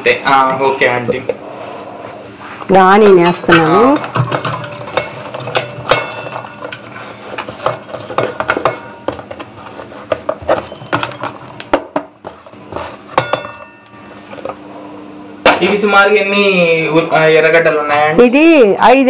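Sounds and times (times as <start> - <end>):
steel bowl ringing: 3.1 - 9.3, 13.1 - 14.6.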